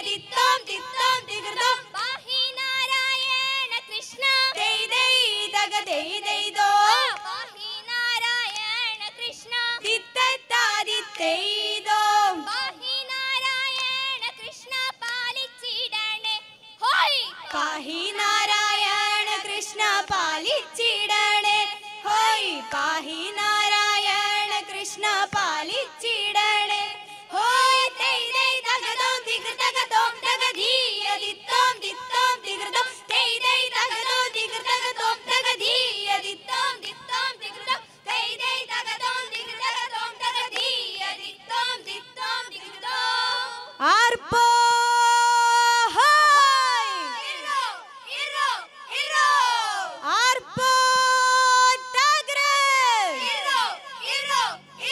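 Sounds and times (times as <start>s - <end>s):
women singing in unison: 0.0s - 54.9s
hand claps: 13.7s - 15.2s, 40.4s - 40.8s.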